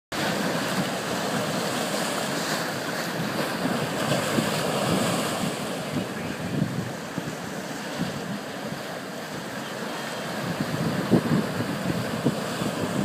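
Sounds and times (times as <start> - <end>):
ocean surf washing on shore: 0.1 - 13.0
wind buffeting microphone: 2.6 - 13.0.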